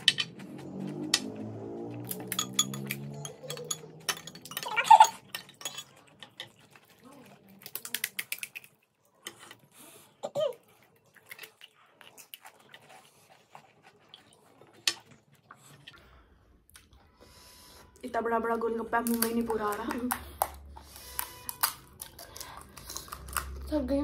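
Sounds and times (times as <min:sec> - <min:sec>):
crisp shells cracking and crunching: 0:21.2 - 0:23.7.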